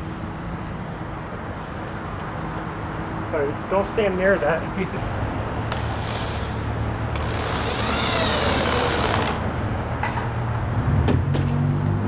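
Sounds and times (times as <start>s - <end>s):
power drill drilling into wood: 7.2s - 9.4s.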